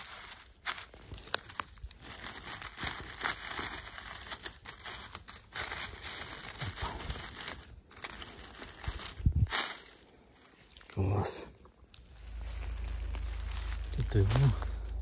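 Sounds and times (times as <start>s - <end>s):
leaf litter rustling and crackling: 0.0s - 15.0s.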